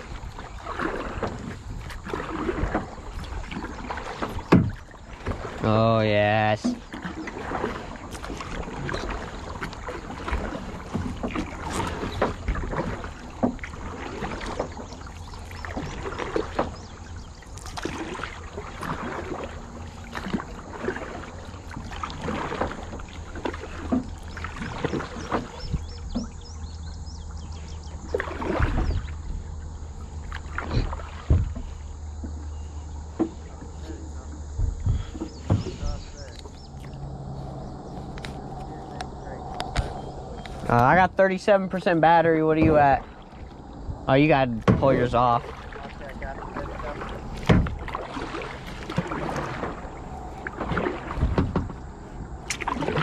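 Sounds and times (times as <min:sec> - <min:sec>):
paddle splashing in water: 0:00.0 - 0:53.0
steady low rumble: 0:28.8 - 0:52.6.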